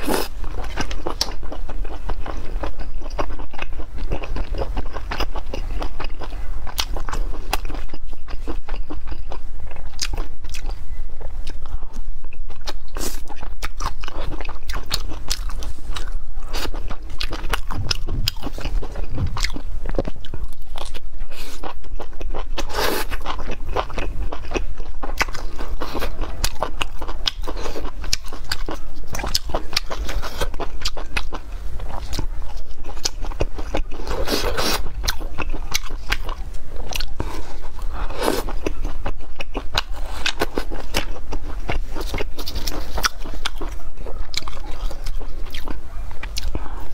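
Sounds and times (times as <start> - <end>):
person chewing food: 0.0 - 46.9.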